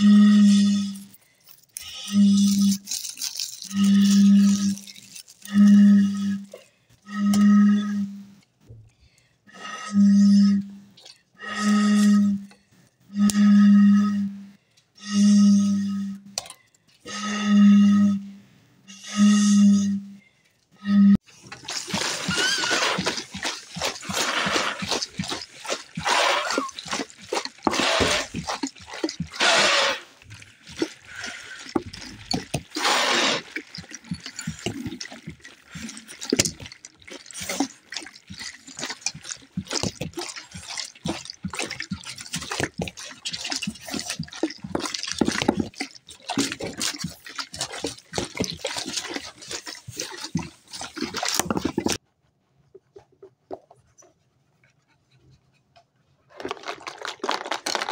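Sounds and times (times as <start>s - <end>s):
dripping water: 0.6s - 7.4s, 21.4s - 52.0s
clicks and splashes: 0.8s - 6.8s, 21.3s - 52.0s, 56.4s - 57.9s.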